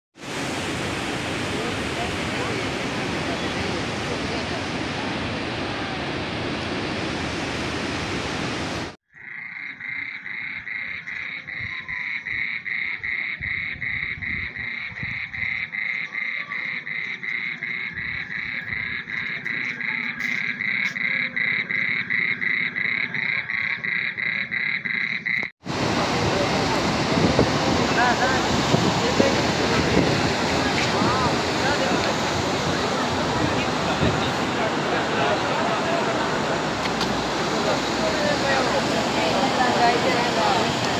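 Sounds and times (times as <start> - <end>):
rushing floodwater: 0.2 - 9.0, 25.6 - 40.9
frogs calling: 9.1 - 25.5, 26.4 - 40.9.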